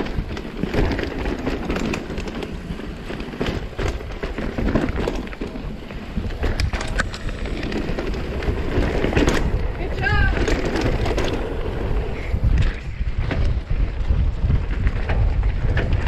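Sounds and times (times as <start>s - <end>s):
bike clicks and rattles: 0.0s - 16.0s
tyres rumbling on dirt: 0.0s - 16.0s
rushing air: 5.7s - 15.5s.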